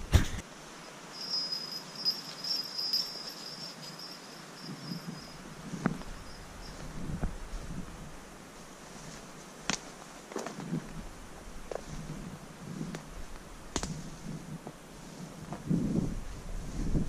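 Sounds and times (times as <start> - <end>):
thin high chirp: 1.0 - 5.4.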